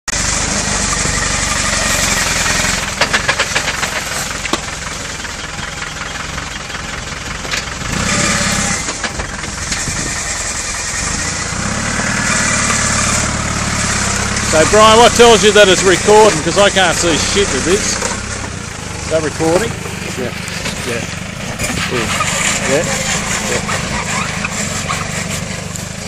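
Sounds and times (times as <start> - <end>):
diesel engine under load: 0.1 - 26.0.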